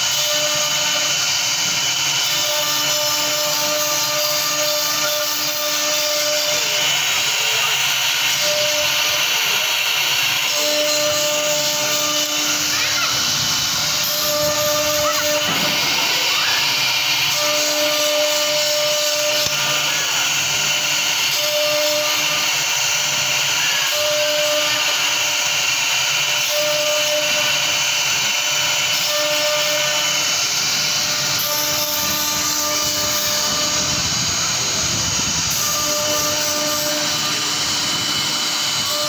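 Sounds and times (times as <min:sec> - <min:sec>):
router spindle whine: 0:00.0 - 0:39.0.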